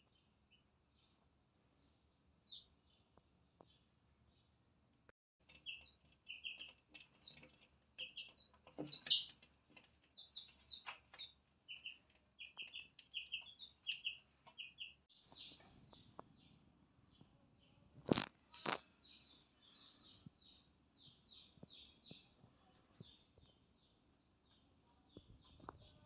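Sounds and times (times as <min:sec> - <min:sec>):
chicks peeping: 0:05.4 - 0:26.0.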